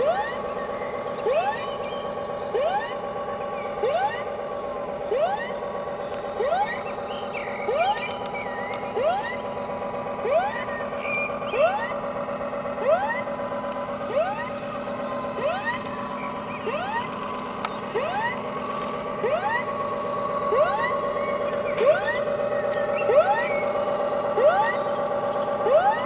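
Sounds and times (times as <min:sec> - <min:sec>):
whooping siren: 0:00.0 - 0:26.0
steady tone: 0:10.2 - 0:23.8.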